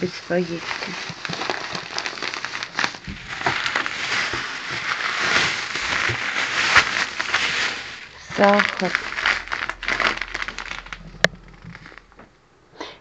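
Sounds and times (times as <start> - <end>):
plastic bag rustling and crinkling: 0.0 - 12.4.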